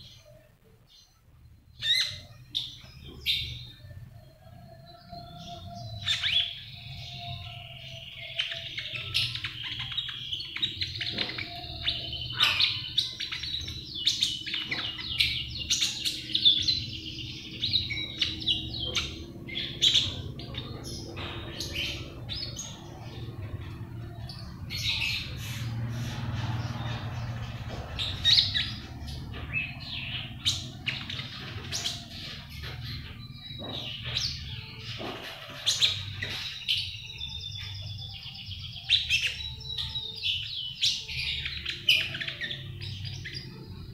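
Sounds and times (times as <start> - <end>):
bird chirping and twittering: 0.0 - 43.9.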